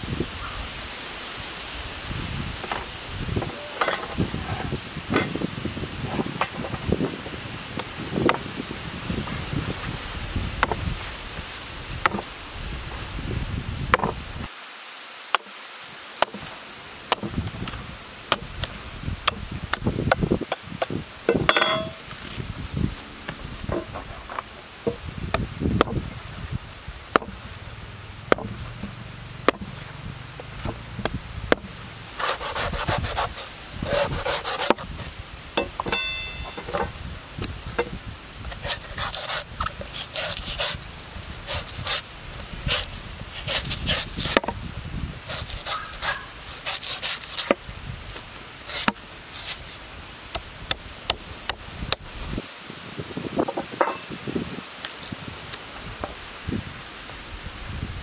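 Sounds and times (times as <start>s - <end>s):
knife chopping coconut husk: 16.2s - 16.5s, 17.1s - 17.4s, 18.3s - 22.0s, 24.9s - 26.0s, 27.1s - 27.4s, 28.2s - 29.8s, 30.6s - 34.9s, 38.5s - 40.8s, 41.5s - 42.0s, 42.7s - 44.6s, 45.3s - 47.6s, 48.7s - 49.6s
knife scraping husk: 30.6s - 37.0s, 37.8s - 40.8s, 41.4s - 44.5s, 45.3s - 49.8s.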